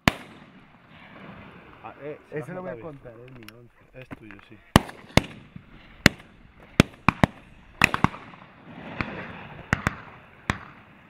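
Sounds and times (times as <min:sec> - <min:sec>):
shotguns firing: 0:00.0 - 0:01.8, 0:04.7 - 0:11.0.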